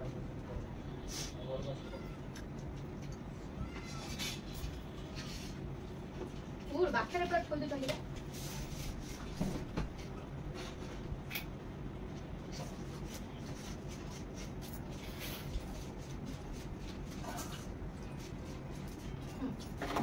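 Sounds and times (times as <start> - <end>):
steady low hum: 0.0 - 20.0
fingers mixing food on steel plates: 12.8 - 20.0.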